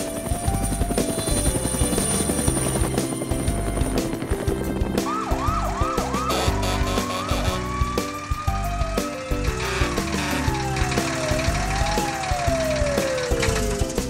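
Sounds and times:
upbeat cartoon music: 0.0 - 14.0
siren wailing: 5.0 - 13.6.

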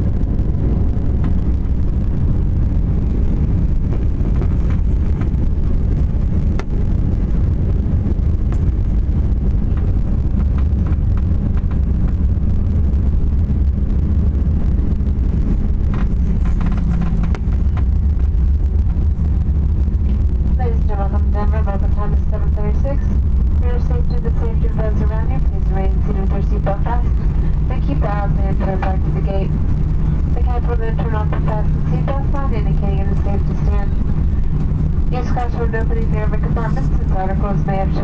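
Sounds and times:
airliner cabin rumble: 0.0 - 38.0.

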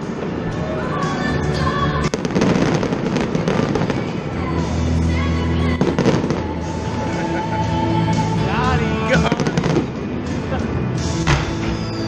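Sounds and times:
music with sustained notes: 0.0 - 12.0
fireworks bangs: 2.0 - 4.8, 5.7 - 7.2, 9.1 - 10.2.

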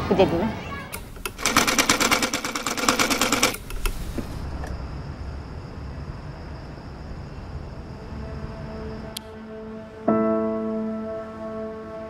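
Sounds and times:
sewing machine stitching: 1.0 - 4.0.

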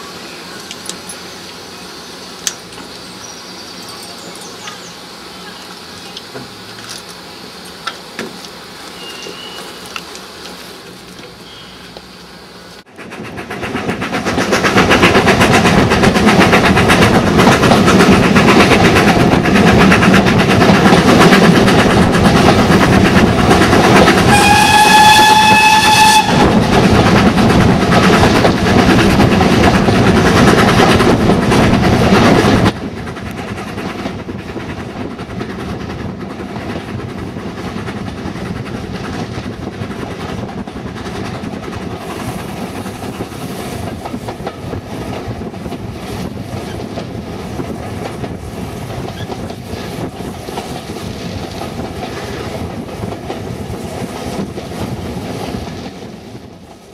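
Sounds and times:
steam locomotive running: 0.0 - 56.9
train whistle blast: 9.0 - 9.8, 24.3 - 26.5.

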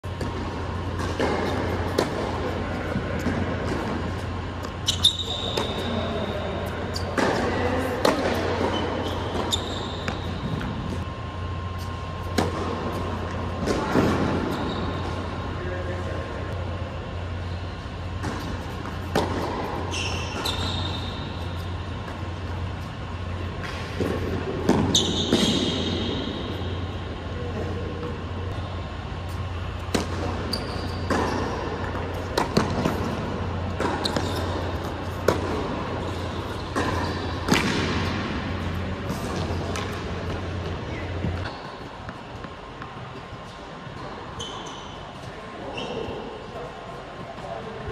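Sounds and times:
steady low hum: 0.0 - 47.9
tennis ball bounces: 0.1 - 5.8, 29.7 - 35.8, 36.4 - 42.9
shoe squeaks: 4.2 - 12.4, 14.2 - 15.4, 17.4 - 23.2, 24.8 - 26.8, 28.6 - 32.1, 33.4 - 35.2, 36.0 - 37.5, 40.8 - 42.0, 43.4 - 46.4.

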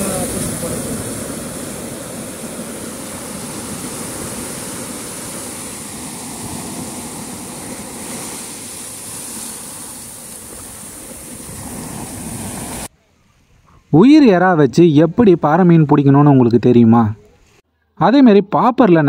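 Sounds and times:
sea surf: 0.0 - 12.9
wind: 0.0 - 19.0.

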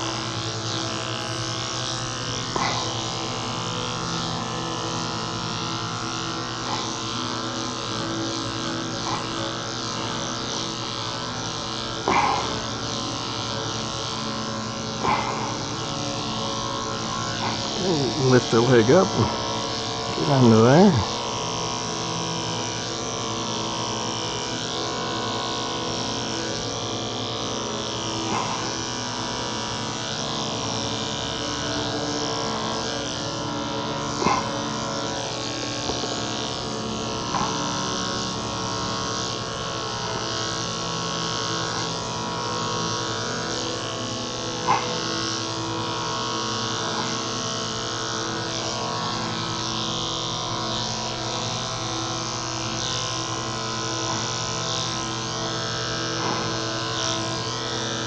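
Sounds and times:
electric clippers humming: 0.0 - 58.0.

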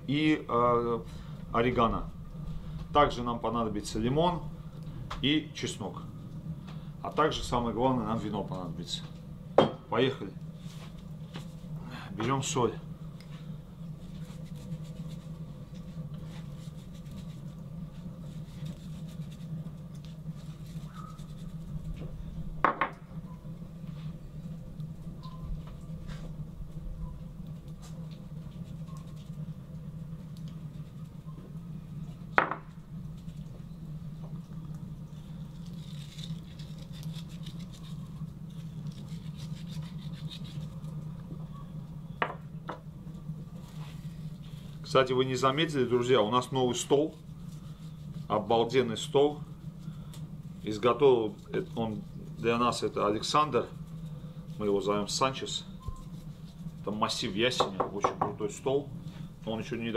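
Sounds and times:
steady low hum: 0.0 - 59.9
dry seasoning rubbing on meat: 13.4 - 22.4, 27.4 - 31.4, 35.2 - 41.3, 43.2 - 59.9
small clicks and scratches: 35.5 - 41.1.

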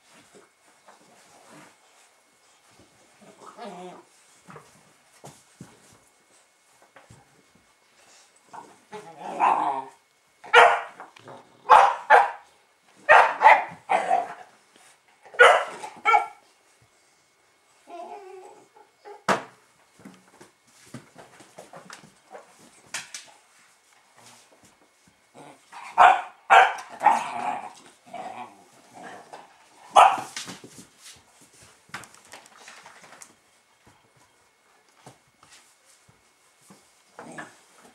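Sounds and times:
puppies barking: 10.5 - 11.0, 11.7 - 12.5, 13.1 - 14.4, 15.4 - 16.4, 25.9 - 27.3, 29.9 - 30.3.

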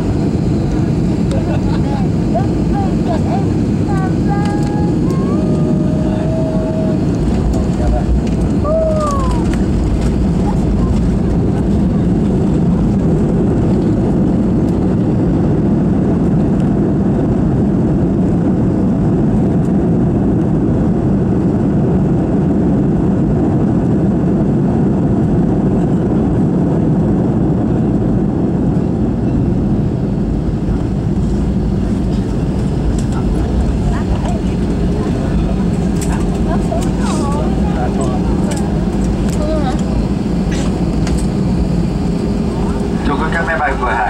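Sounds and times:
jet airliner cabin rumble: 0.0 - 44.0.

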